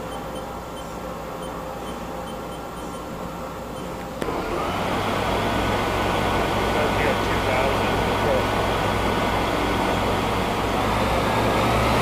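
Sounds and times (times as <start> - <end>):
lathe chuck whirring with whine: 0.0 - 12.0
lathe humming: 4.2 - 12.0.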